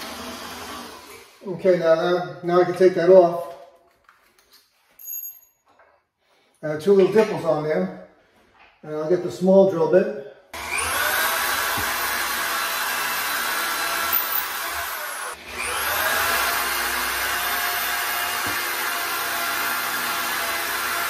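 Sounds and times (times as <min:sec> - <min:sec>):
electric drill running: 0:00.0 - 0:01.4, 0:10.6 - 0:21.0.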